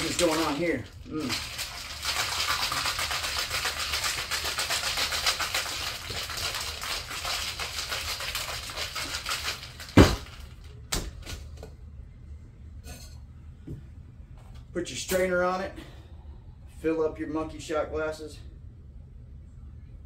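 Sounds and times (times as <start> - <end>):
ice rattling in cocktail shaker: 0.0 - 10.7.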